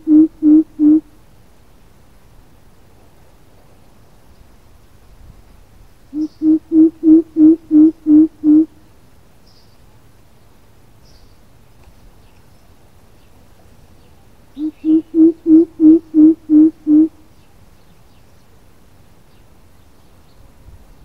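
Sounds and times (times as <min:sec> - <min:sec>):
bird hooting: 0:00.0 - 0:01.1, 0:06.1 - 0:08.8, 0:14.6 - 0:17.2.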